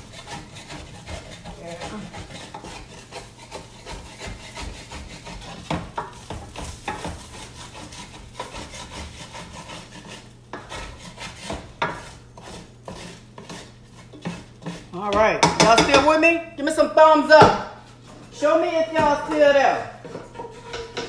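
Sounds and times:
wooden spatula scraping pan: 0:00.0 - 0:16.3, 0:17.3 - 0:21.0
knocks against pan: 0:15.1 - 0:16.2.

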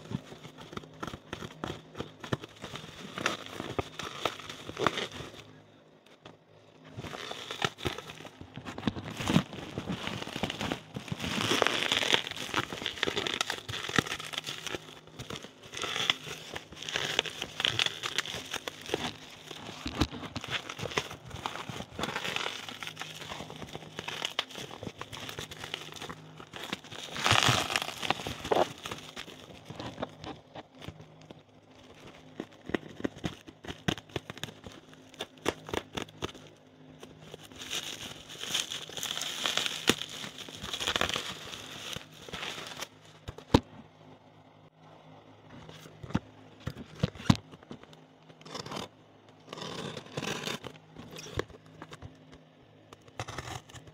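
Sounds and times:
bubble wrap crinkling: 0:00.0 - 0:05.6, 0:06.8 - 0:43.6.

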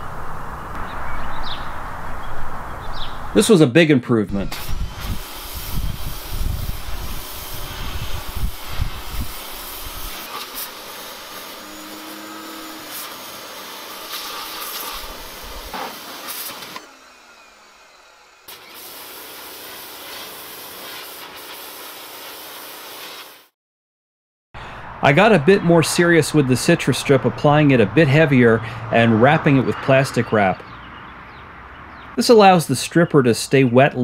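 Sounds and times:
pressure washer water jet hiss: 0:04.5 - 0:23.5.

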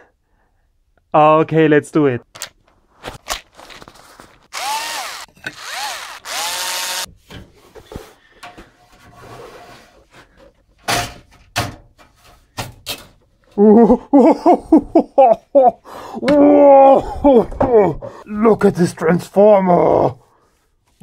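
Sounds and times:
cordless drill motor whining: 0:04.5 - 0:07.1.

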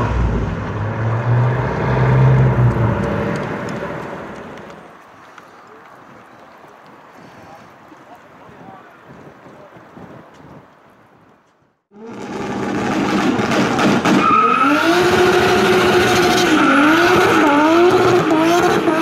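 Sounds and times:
faint wind noise: 0:00.0 - 0:12.5
car engine at high revs: 0:11.9 - 0:19.0.

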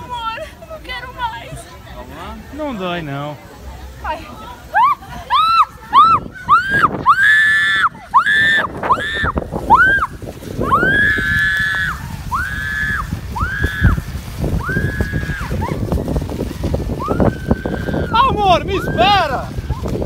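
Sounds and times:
rushing slide noise: 0:04.1 - 0:20.0.

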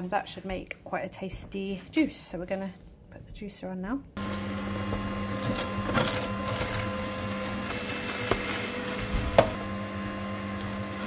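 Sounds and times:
juicer motor humming: 0:04.2 - 0:11.0.

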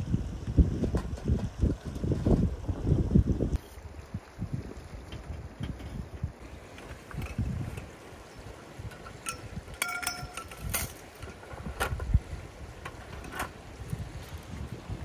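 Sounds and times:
wind buffeting microphone: 0:00.0 - 0:15.0
short ringing clink: 0:09.2 - 0:11.0.

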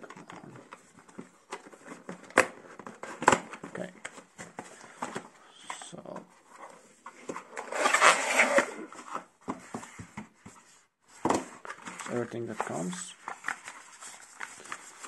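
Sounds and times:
cardboard sleeve scraping: 0:07.4 - 0:09.1.

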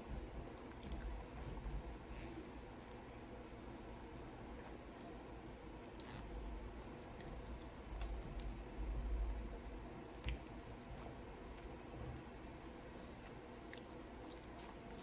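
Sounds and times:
wet chewing mouth sounds: 0:11.6 - 0:15.0.

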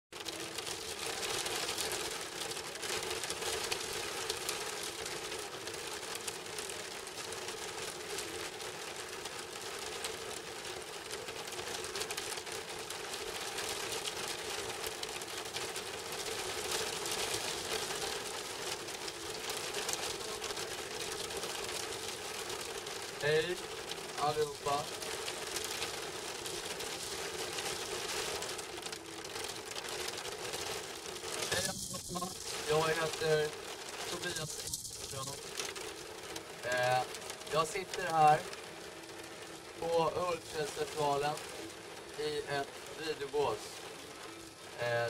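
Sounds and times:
rain pattering: 0:00.1 - 0:45.0.

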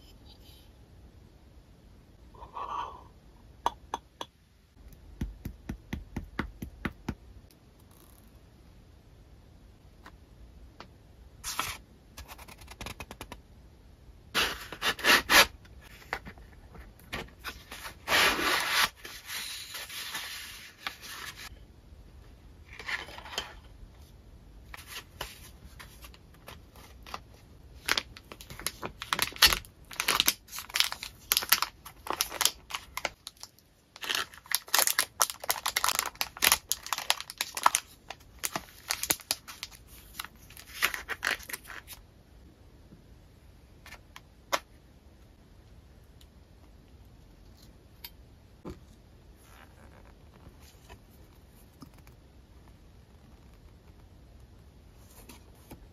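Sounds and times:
paper and cellophane rustling: 0:27.8 - 0:42.0.

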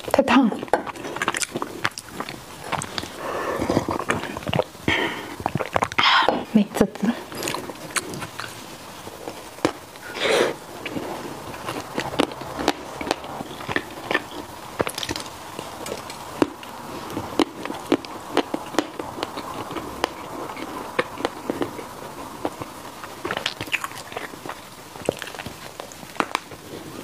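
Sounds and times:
chewing mouth clicks: 0:07.3 - 0:08.6, 0:23.2 - 0:26.6.

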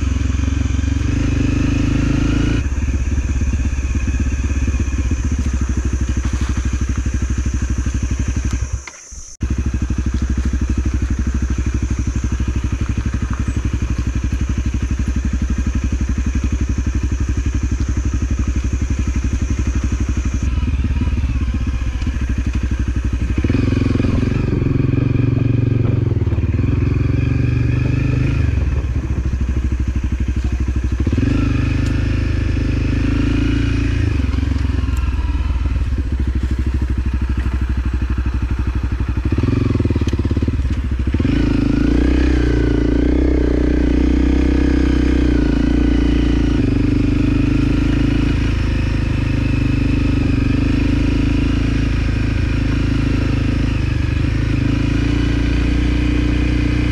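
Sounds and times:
motorcycle engine revving: 0:00.0 - 0:56.9.

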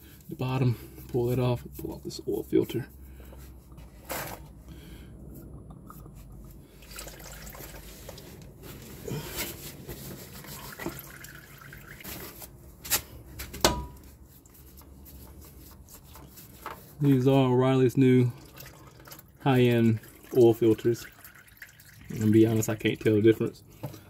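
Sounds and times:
oil trickling and dripping: 0:04.8 - 0:09.0, 0:10.3 - 0:12.5, 0:14.4 - 0:24.0
oil filter unscrewing: 0:05.3 - 0:09.0.

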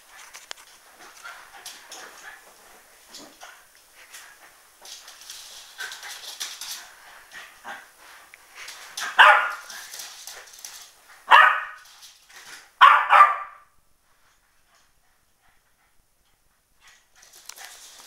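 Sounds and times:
clicks and scuffles: 0:00.0 - 0:07.4
dog barking: 0:09.1 - 0:09.7, 0:11.3 - 0:11.8, 0:12.8 - 0:13.7.

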